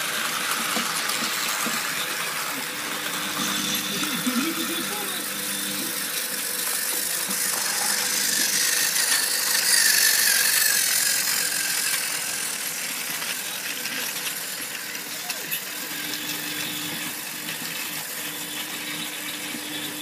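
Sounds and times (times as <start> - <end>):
toy train motor whirring: 0.0 - 20.0.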